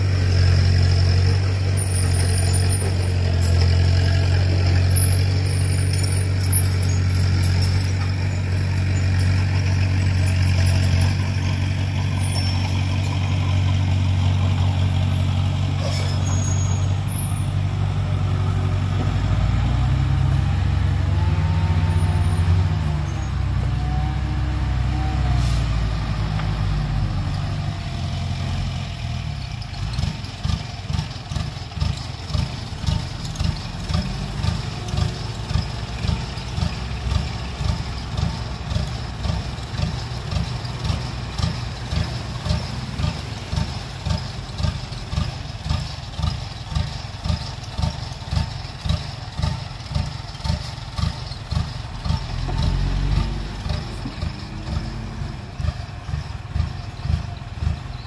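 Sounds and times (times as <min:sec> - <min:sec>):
diesel truck engine pulsing: 0:00.0 - 0:58.0.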